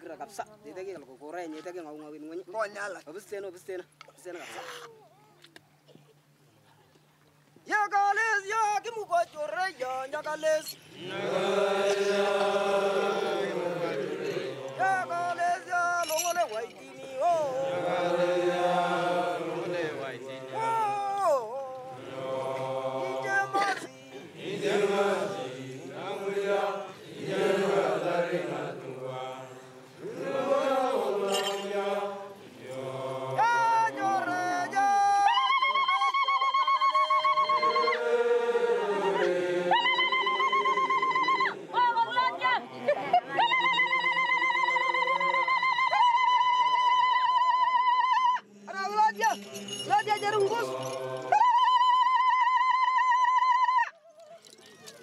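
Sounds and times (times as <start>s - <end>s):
men singing call and response: 7.8s - 47.0s, 48.2s - 52.5s
men chanting low: 10.9s - 15.7s, 16.8s - 35.0s, 49.4s - 51.3s
single voice singing lead: 49.5s - 52.0s.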